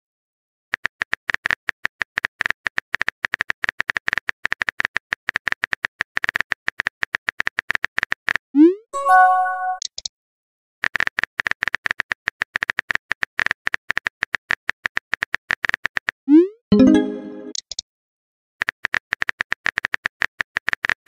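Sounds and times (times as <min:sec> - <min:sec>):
brief chime: 0:09.0 - 0:09.8.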